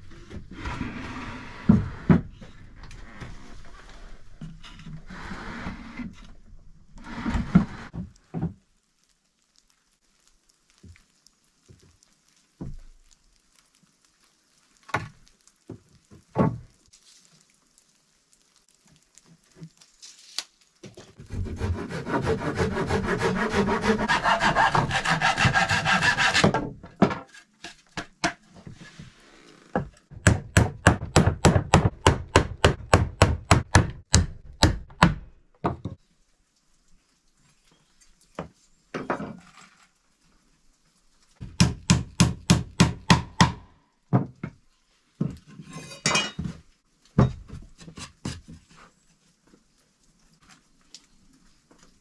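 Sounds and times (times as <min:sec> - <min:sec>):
sawing wood: 0:21.2 - 0:26.7
knocks on wooden boards: 0:29.8 - 0:36.0, 0:41.4 - 0:44.6.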